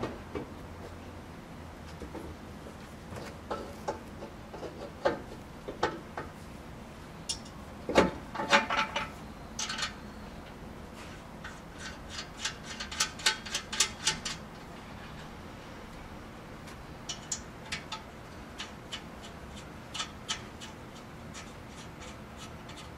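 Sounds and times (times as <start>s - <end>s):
metal knocks and scrapes: 3.2s - 6.3s.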